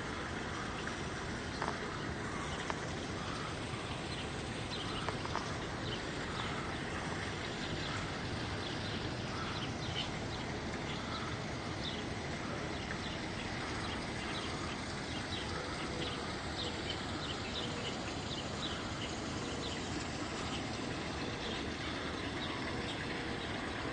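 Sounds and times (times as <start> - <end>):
birds chirping: 0.0 - 23.9
outdoor background noise: 0.0 - 23.9.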